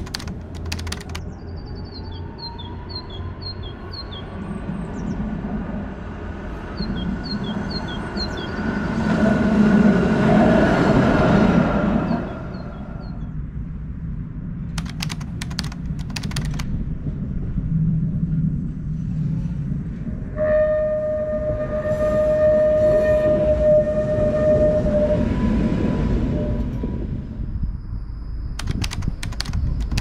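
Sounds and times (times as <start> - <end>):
sharp clicks: 0.0 - 1.2, 14.8 - 16.7, 28.6 - 30.0
tram passing with whine: 5.7 - 13.1, 18.6 - 27.6
constant low rumble: 12.6 - 20.4.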